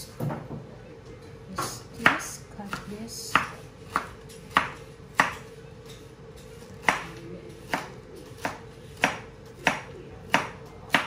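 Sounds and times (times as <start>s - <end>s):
knife slicing pineapple: 6.4s - 11.0s.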